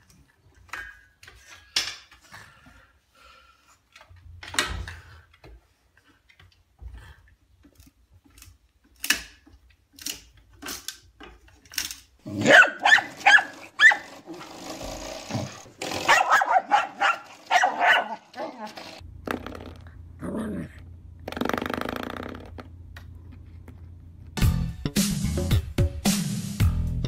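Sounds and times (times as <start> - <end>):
dog growling and barking: 12.2 - 18.8, 20.2 - 20.8.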